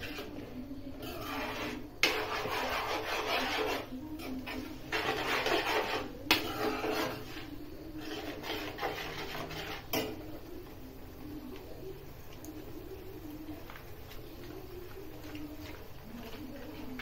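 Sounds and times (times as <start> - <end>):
spoon scraping frying pan: 0.0 - 10.8.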